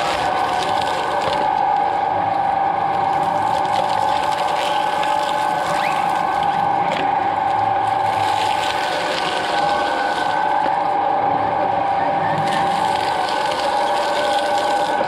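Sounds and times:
coconut shells cracking: 0:00.0 - 0:01.5, 0:03.0 - 0:07.2
shredder motor whine: 0:00.0 - 0:15.0.

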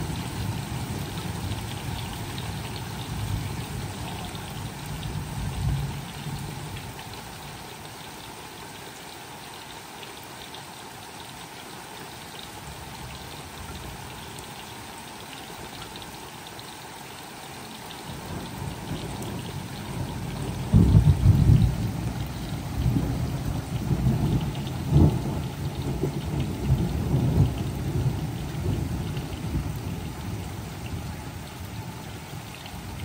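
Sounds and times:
steady rain falling: 0:00.0 - 0:33.0
thunder rumbling: 0:18.2 - 0:31.0.

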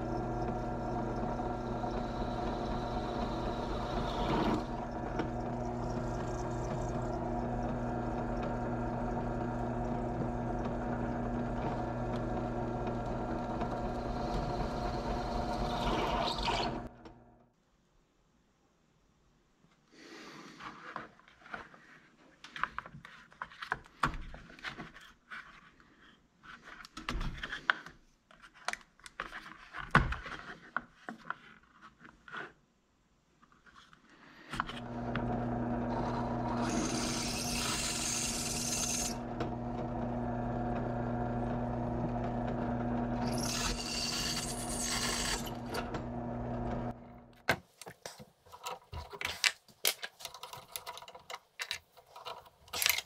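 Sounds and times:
drill bit cutting through steel: 0:00.0 - 0:10.8, 0:11.7 - 0:16.9, 0:35.1 - 0:39.3, 0:43.2 - 0:45.9
drill press motor humming: 0:00.0 - 0:17.4, 0:34.7 - 0:47.4
drill bits rattling in plastic case: 0:48.6 - 0:53.0.

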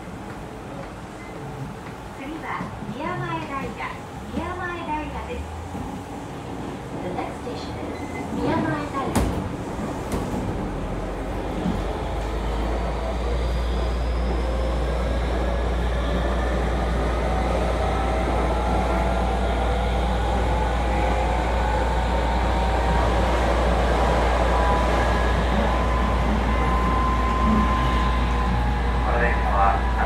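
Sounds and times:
train motors and wheels running: 0:00.0 - 0:30.0
train inverter whining: 0:09.5 - 0:30.0.

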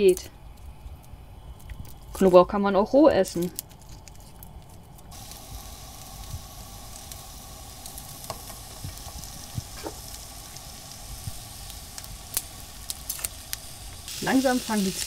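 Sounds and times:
onions sizzling in frying pan: 0:05.1 - 0:15.0.

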